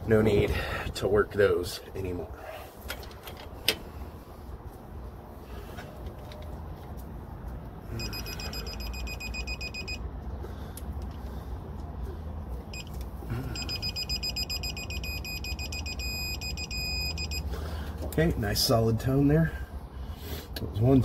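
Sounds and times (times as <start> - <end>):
steady solid beep tone: 7.9 - 10.0, 12.7 - 17.5
torque wrench fast-pulsing beep: 13.6 - 17.4.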